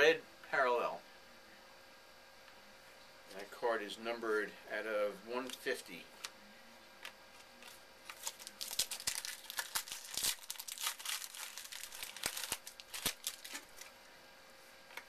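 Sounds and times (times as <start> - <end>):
wrapper tearing and crinkling: 7.6 - 13.9.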